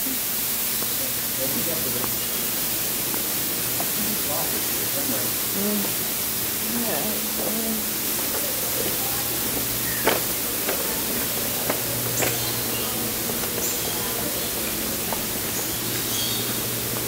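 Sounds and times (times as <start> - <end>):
steady indoor ambience hiss: 0.0 - 17.0
light clicks and knocks: 9.6 - 13.9
high bird chirps: 15.4 - 16.7.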